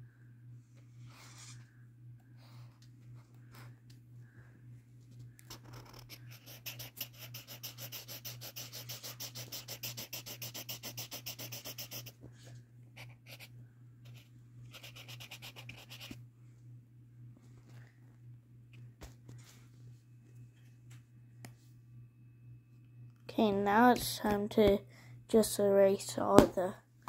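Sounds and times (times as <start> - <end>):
marker scratching on paper: 5.5 - 12.2, 13.0 - 16.2.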